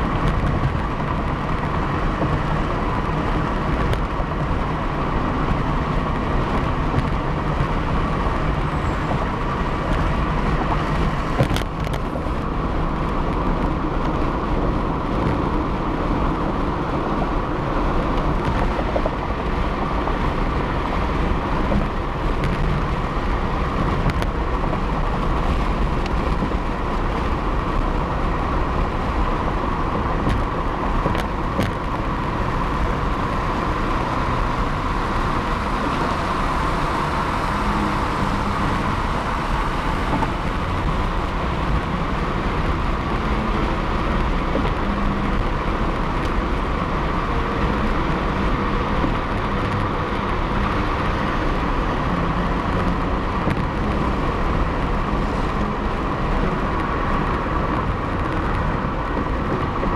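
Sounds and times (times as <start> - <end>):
low engine hum: 0.0 - 59.9
wind noise: 0.0 - 59.9.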